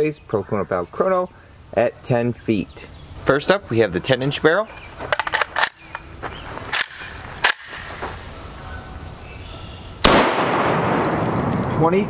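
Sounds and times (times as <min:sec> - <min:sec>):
sharp clicks: 0:04.8 - 0:06.1, 0:06.7 - 0:07.9
pistol gunshot with ringing tail: 0:10.0 - 0:11.4.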